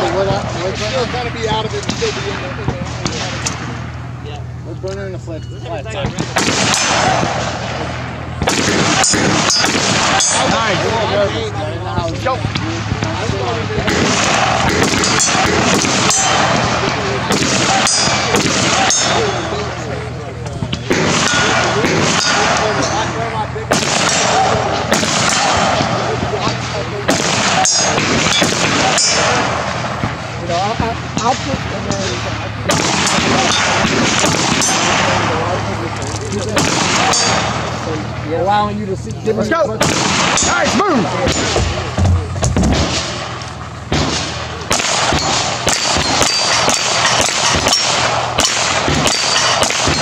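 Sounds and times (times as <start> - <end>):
people talking quietly: 0.0 - 50.0
rifle shots: 6.1 - 11.2, 12.4 - 19.8, 20.7 - 35.6, 36.4 - 37.9, 39.8 - 50.0
steel plates clanging: 14.6 - 16.6, 45.1 - 50.0
handgun shots: 41.3 - 50.0.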